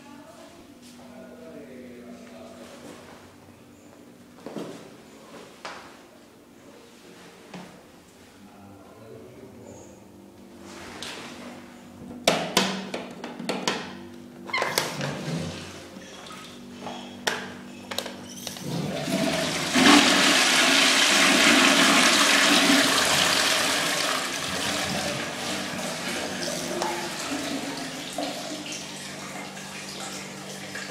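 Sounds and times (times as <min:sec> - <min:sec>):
toilet flushing: 0:18.4 - 0:30.9.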